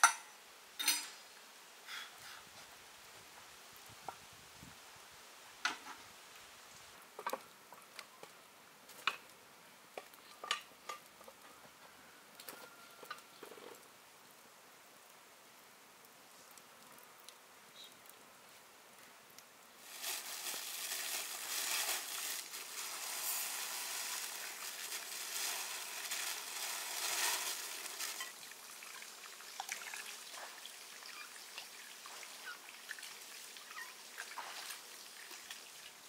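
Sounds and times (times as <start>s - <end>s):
plastic bag crinkling: 19.8s - 28.4s
powder pouring into glass bowl: 19.8s - 28.4s.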